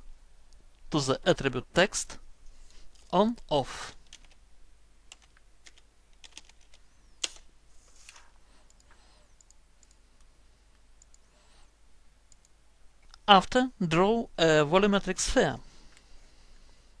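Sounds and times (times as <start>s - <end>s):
keyboard keystrokes: 5.1s - 7.4s
mouse clicks: 8.6s - 10.3s, 11.0s - 11.3s, 12.3s - 13.2s.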